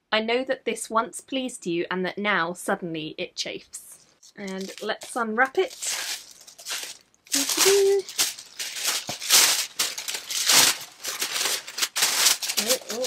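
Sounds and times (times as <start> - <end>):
tissue paper crinkling: 4.3 - 13.0
person humming: 7.4 - 8.1.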